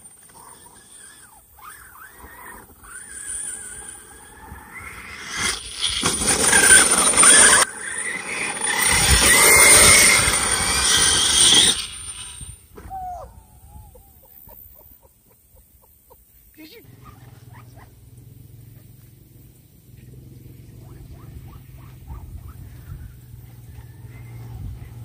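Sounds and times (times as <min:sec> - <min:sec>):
electric motor whining: 0:00.0 - 0:12.6
tyres churning sand and dirt: 0:00.0 - 0:12.7.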